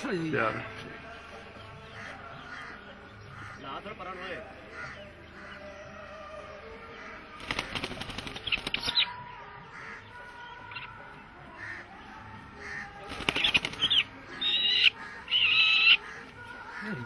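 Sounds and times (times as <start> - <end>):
high bird calls: 6.9 - 17.0
bird wings flapping: 7.4 - 9.1, 13.1 - 14.1.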